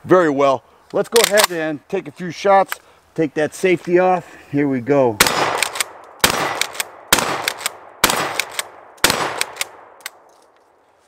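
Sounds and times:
shotgun pump clacks: 1.2 - 1.6, 5.5 - 10.2
shotgun shots: 5.2 - 10.0.

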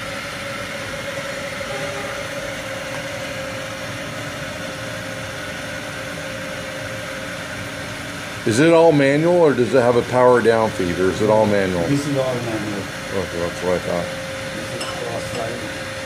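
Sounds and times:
grinder mechanical hum: 0.0 - 16.0
faint held tone: 1.6 - 2.7.

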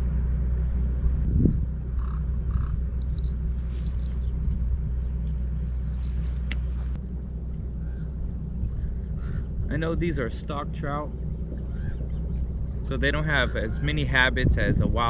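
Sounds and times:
steady low rumble: 0.0 - 15.0
harsh caw-like calls: 9.2 - 9.5.

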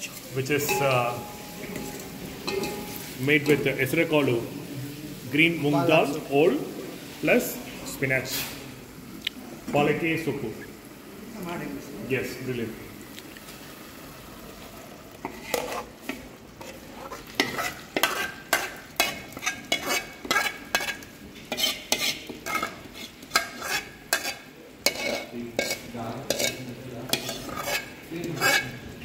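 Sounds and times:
spoon scraping and knocking a pan: 0.0 - 3.7, 15.2 - 28.8
food frying in a pan: 0.0 - 29.0.

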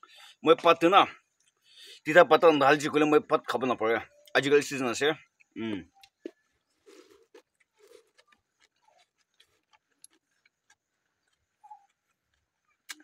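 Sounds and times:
soft chewing and lip smacks: 1.2 - 1.9, 5.2 - 13.0.

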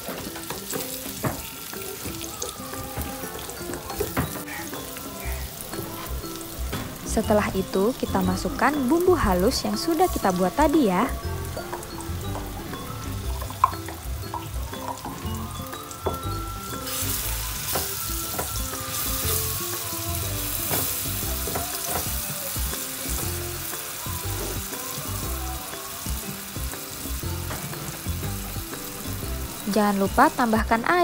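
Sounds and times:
paste sizzling in a frying pan: 0.0 - 31.0
wooden spatula knocking on pan: 0.1 - 4.8, 13.3 - 15.2, 16.0 - 16.4, 17.6 - 19.5, 20.6 - 22.3.

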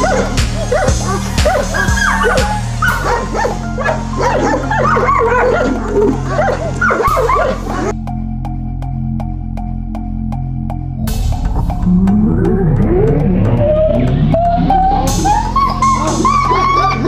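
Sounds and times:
dogs barking and yelping: 0.0 - 8.0, 13.6 - 17.0
background music with steady beat: 0.0 - 17.0.

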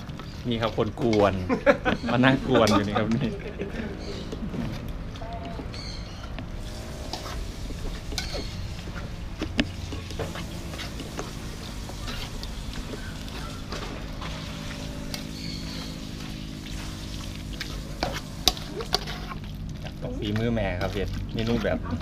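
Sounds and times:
metal spoon scraping a pot: 6.6 - 22.0.

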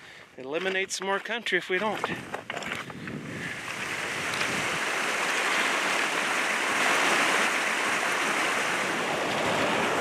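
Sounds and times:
fast water rushing over rocks: 3.4 - 10.0.

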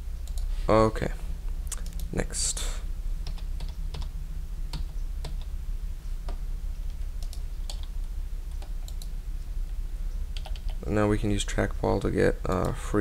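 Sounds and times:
steady low hum: 0.0 - 13.0
keyboard keys clicking: 4.7 - 5.5, 6.2 - 7.9, 8.5 - 9.1, 10.3 - 10.8.

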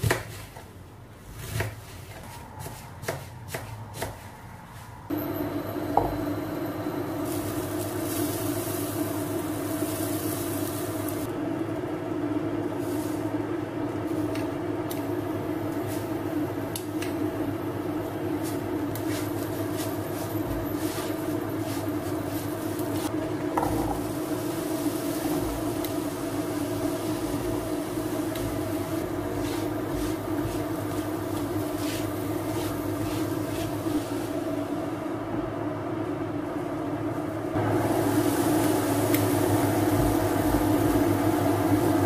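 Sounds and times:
induction hob humming: 5.0 - 42.0
butter sizzling in a pan: 7.0 - 11.3, 18.5 - 34.1, 37.6 - 42.0.

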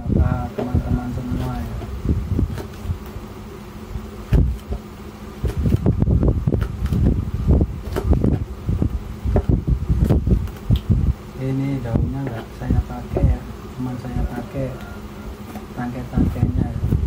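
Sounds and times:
knife chopping on plastic board: 7.8 - 8.4.

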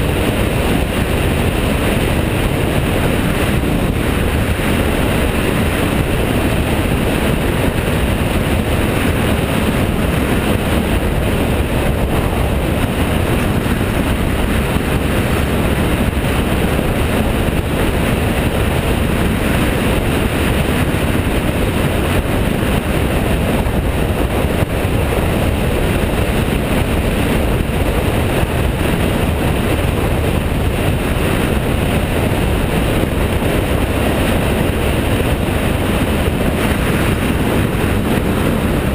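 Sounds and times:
motorcycle engine cruising: 0.0 - 38.9
wind rushing: 0.0 - 38.9.

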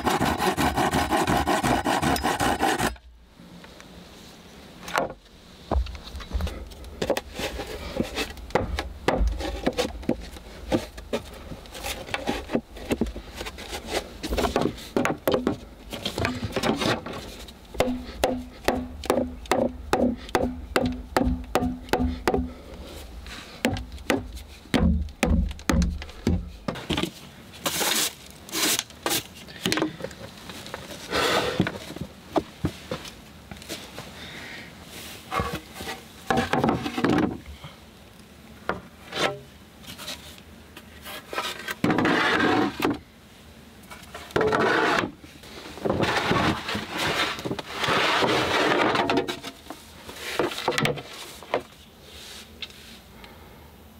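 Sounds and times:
boards knocking and thudding: 4.9 - 11.3, 11.9 - 22.6, 23.6 - 27.2, 36.3 - 37.4.

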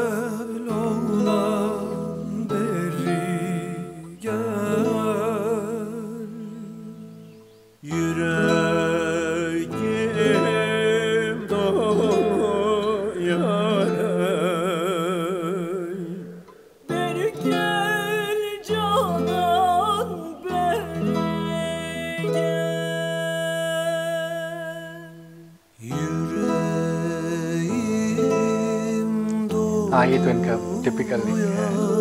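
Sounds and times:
singers holding wavering notes: 0.0 - 32.0
plucked strings: 7.2 - 23.7, 26.0 - 32.0.

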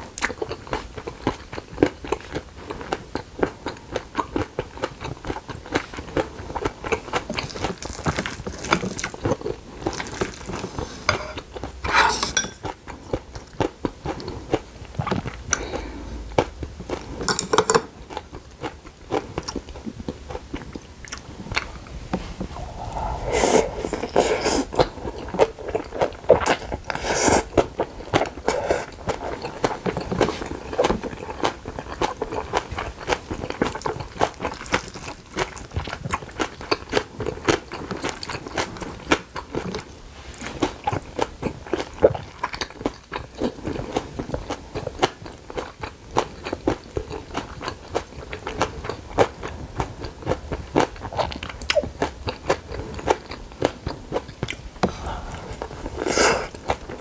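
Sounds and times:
chewing and crunching: 0.0 - 11.8, 12.6 - 23.0, 23.7 - 57.0
spoon scraping glass bowl: 11.1 - 12.6
wet mouth sounds: 21.1 - 31.2, 51.0 - 57.0.

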